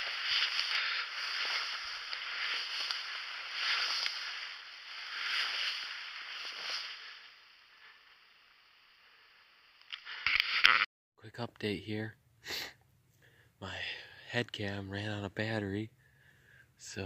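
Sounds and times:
ferns swishing against clothing: 0.0s - 7.3s.

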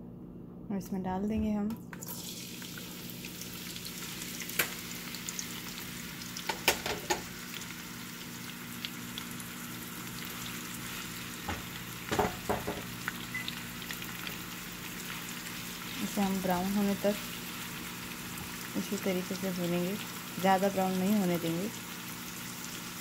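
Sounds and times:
onions sizzling in oil: 2.0s - 23.0s.

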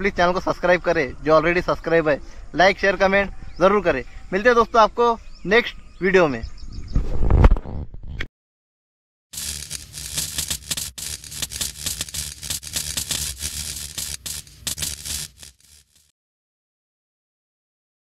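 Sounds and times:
sparks crackling: 9.4s - 16.1s.

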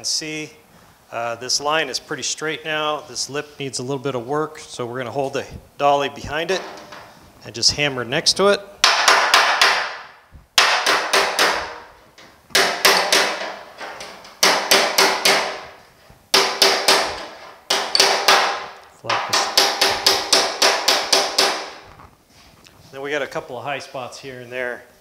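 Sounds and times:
hammer striking steel panel: 8.8s - 11.9s, 12.5s - 21.8s.

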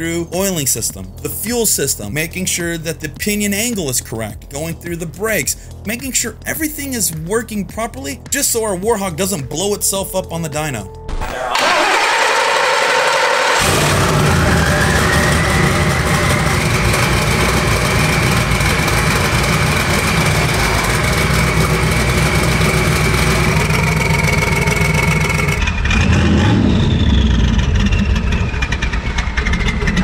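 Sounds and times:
engine running with high whine: 10.9s - 30.0s.

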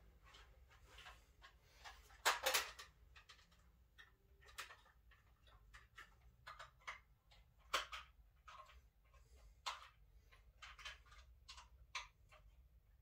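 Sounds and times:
plastic toy clicks and taps: 2.2s - 8.8s, 9.6s - 12.6s.

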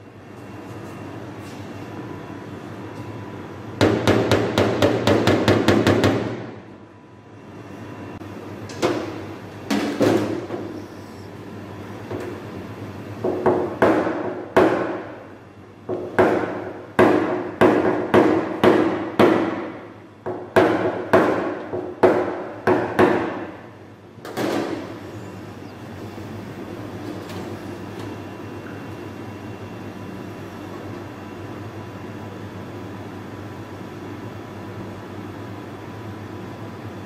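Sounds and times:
steady low hum: 0.0s - 37.0s
hammer tapping on metal panel: 3.8s - 6.3s.

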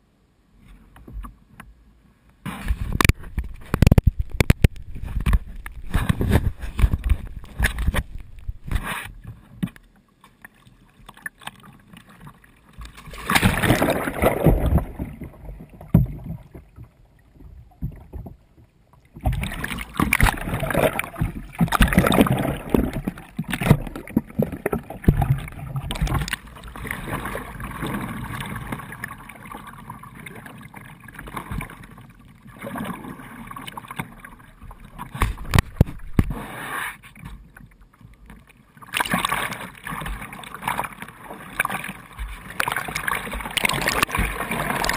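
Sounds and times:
kayak paddle strokes: 2.4s - 12.2s, 19.2s - 29.0s, 34.9s - 37.6s, 38.9s - 44.9s
water splashing and sloshing: 2.4s - 44.9s
muffled underwater sound: 2.5s - 10.0s.

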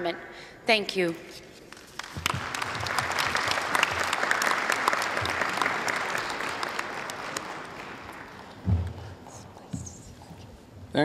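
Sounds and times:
audience applauding: 1.8s - 9.2s.

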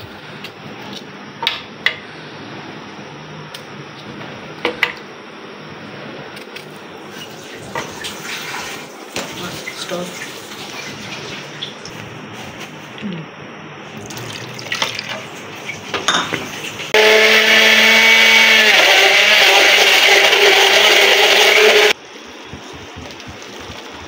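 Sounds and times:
blender motor running: 16.8s - 22.0s.

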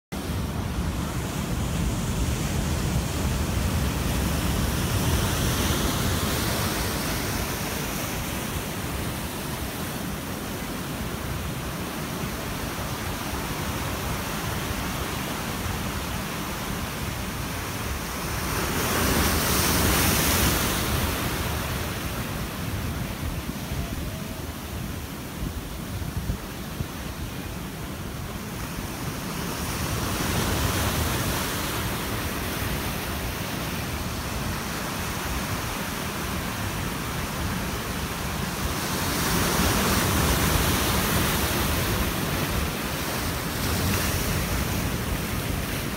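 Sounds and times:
ocean surf breaking: 0.2s - 45.9s
wind rumble on microphone: 0.2s - 45.9s.

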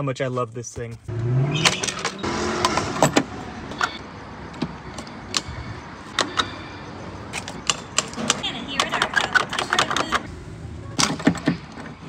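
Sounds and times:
sharp clicks and knocks: 7.3s - 10.3s.

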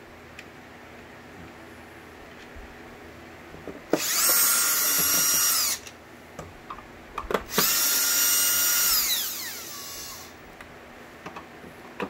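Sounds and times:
power drill whining: 3.9s - 5.9s, 7.5s - 10.4s.

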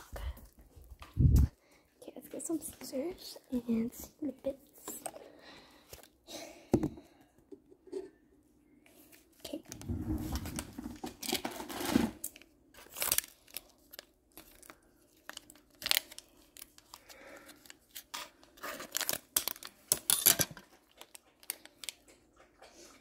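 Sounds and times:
packaging crinkling: 9.5s - 22.0s
packaging tearing: 10.3s - 21.9s.

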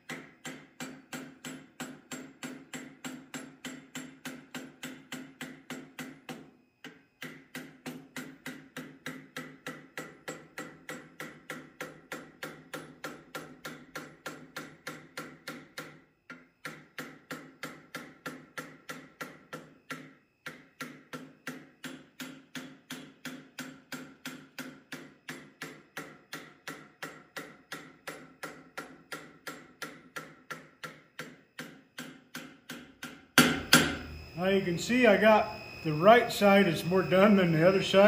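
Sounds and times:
hammer blows on hot steel: 32.7s - 38.0s.

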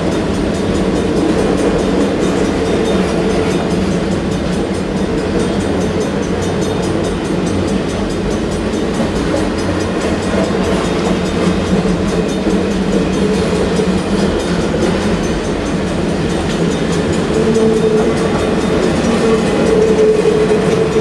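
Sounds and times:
clicking over rail joints: 0.0s - 21.0s
train wheels rumbling on rails: 0.0s - 21.0s.

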